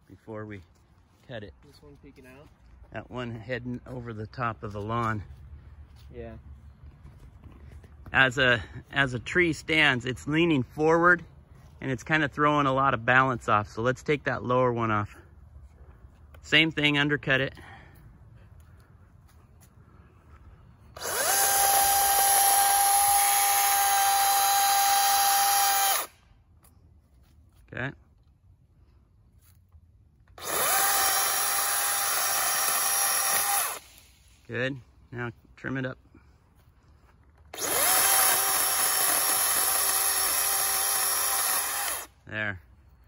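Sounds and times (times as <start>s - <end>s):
electric chainsaw whining: 20.9s - 26.2s, 30.4s - 34.1s, 37.5s - 42.2s.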